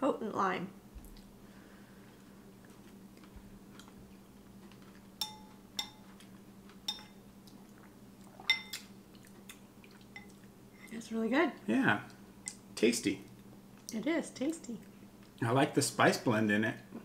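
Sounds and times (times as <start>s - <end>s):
spoons clinking on ceramic bowls: 5.2s - 6.2s, 6.9s - 7.2s, 8.5s - 8.8s.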